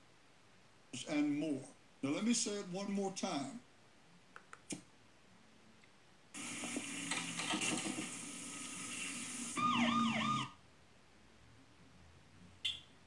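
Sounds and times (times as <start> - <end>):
rushing hiss with faint tones: 6.3 - 9.6.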